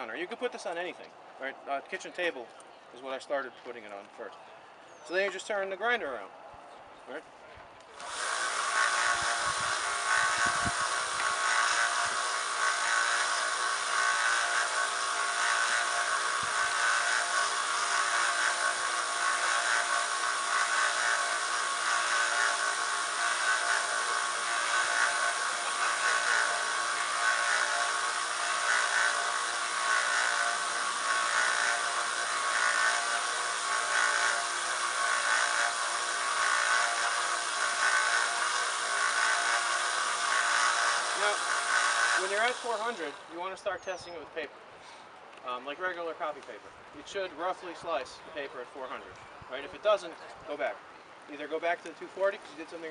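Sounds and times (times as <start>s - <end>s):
belt grinder whirring: 7.9s - 43.4s
blade grinding on belt: 8.0s - 43.4s.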